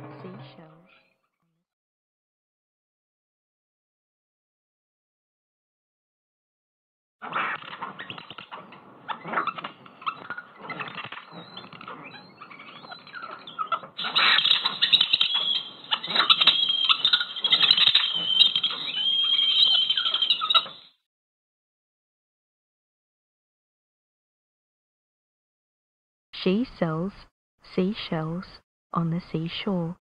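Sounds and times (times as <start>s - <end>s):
muffled birdsong: 7.4s - 21.0s.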